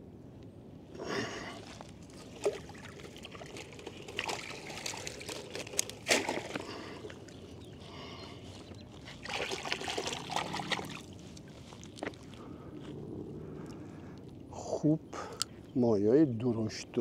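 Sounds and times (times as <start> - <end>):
water trickling and splashing: 1.7 - 12.4.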